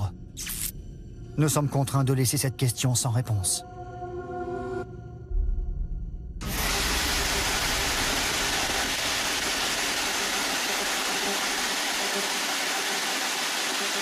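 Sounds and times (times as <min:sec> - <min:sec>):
low rumble: 0:04.8 - 0:08.8
radio static hiss: 0:06.6 - 0:14.0.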